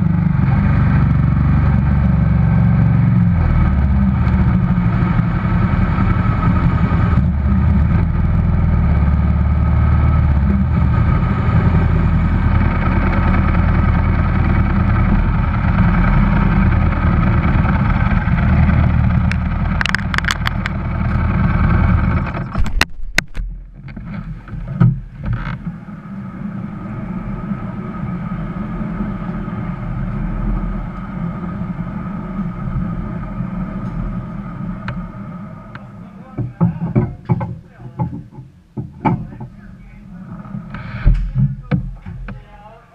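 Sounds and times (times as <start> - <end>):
motorcycle engine running: 0.0 - 42.4
engine backfire cracks: 17.7 - 25.7, 40.4 - 42.3.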